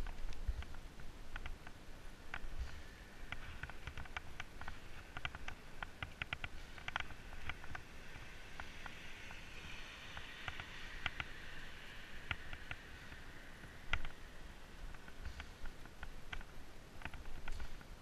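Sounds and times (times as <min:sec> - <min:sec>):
bike clicks and rattles: 0:00.0 - 0:09.0
bike tires rumbling on asphalt: 0:00.0 - 0:18.0.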